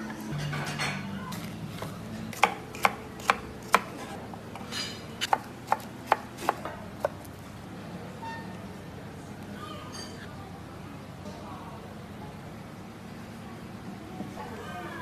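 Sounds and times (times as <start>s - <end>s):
knife chopping on wooden board: 1.8s - 7.3s.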